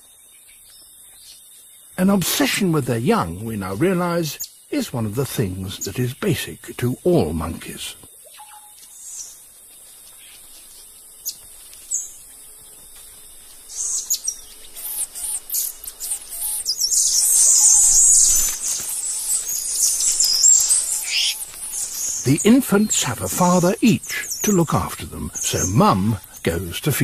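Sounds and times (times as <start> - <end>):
faint high forest hiss: 0.0 - 27.0
monkeys chirping and twittering: 13.7 - 27.0.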